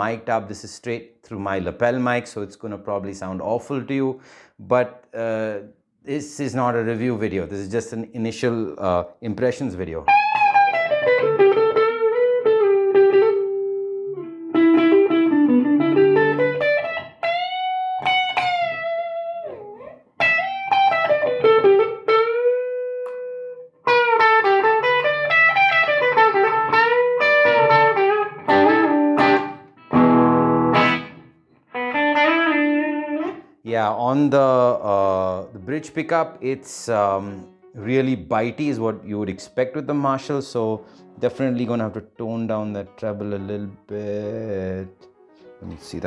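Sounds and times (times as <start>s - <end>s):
overdriven electric guitar lead: 10.1s - 33.5s.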